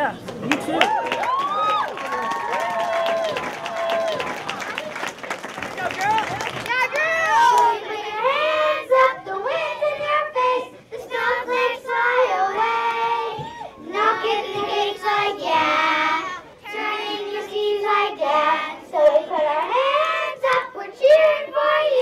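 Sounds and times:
children singing: 0:07.4 - 0:22.0.

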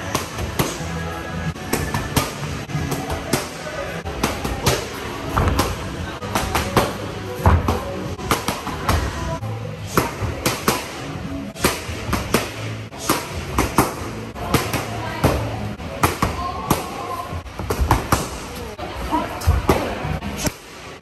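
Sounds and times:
boxing gloves slapping mitts: 0:00.0 - 0:00.9, 0:01.6 - 0:09.2, 0:09.8 - 0:17.0
background music: 0:00.0 - 0:21.0.

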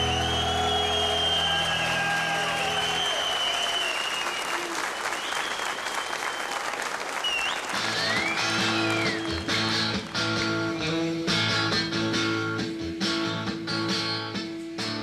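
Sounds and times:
audience applauding: 0:00.0 - 0:10.6
electric guitar playing: 0:08.4 - 0:15.0.

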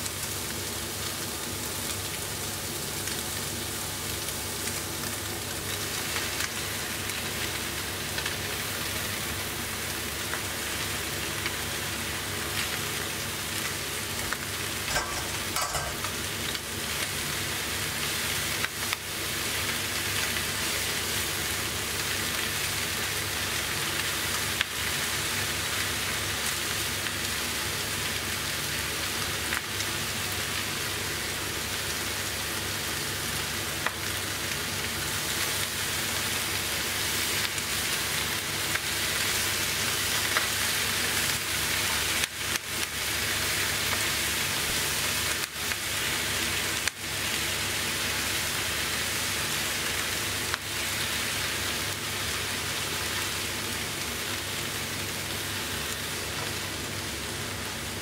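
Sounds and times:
food sizzling in a pan: 0:00.0 - 0:58.0.

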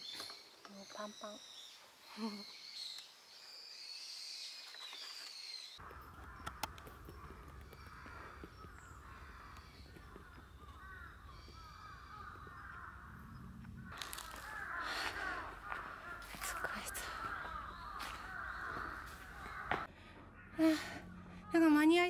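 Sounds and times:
birds calling: 0:00.0 - 0:22.0
sharp clicks: 0:05.8 - 0:08.0.

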